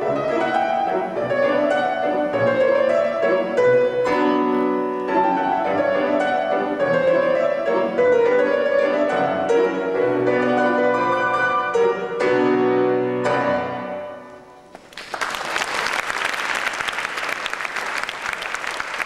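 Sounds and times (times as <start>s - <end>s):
grand piano chords: 0.0s - 14.9s
audience applause: 14.7s - 19.0s.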